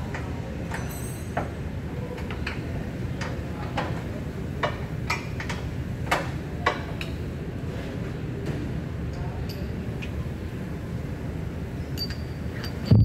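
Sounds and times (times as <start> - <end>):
metallic tool clinks: 12.0 - 12.8.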